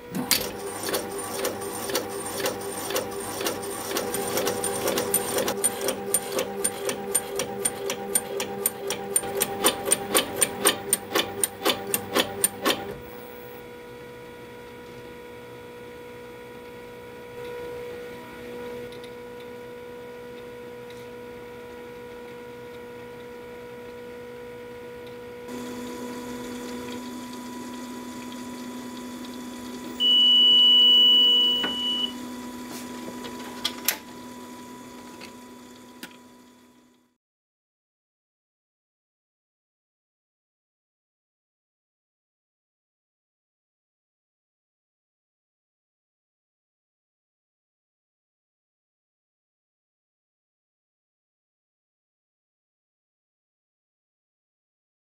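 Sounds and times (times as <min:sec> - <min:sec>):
long high beep: 0:30.0 - 0:32.2.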